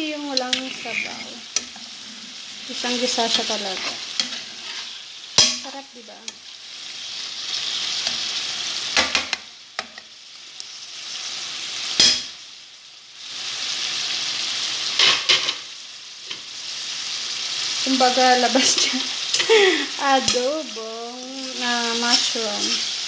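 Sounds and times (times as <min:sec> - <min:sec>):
mushrooms sizzling in frying pan: 0:00.0 - 0:23.0
utensil scraping against pan: 0:00.3 - 0:05.6.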